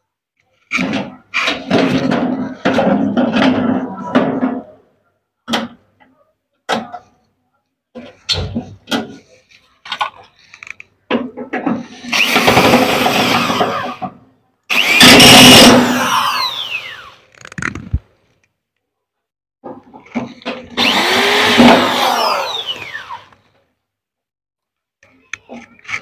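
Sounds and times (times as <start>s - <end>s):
electric drill driver running: 12.1s - 14.0s, 14.7s - 17.2s, 20.8s - 23.4s.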